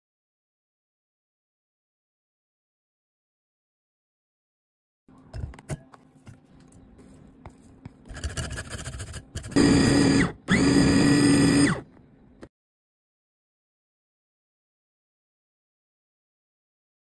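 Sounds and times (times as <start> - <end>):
hand grater rasping: 8.1 - 11.6
electric food chopper motor: 8.8 - 11.8.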